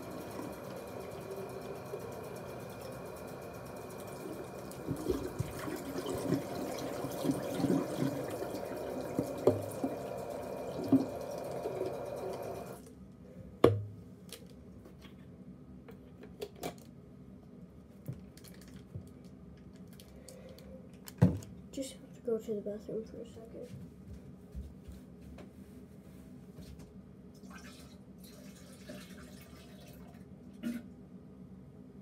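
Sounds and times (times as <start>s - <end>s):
tap water running into bottle: 0.0s - 12.8s, 27.4s - 30.8s.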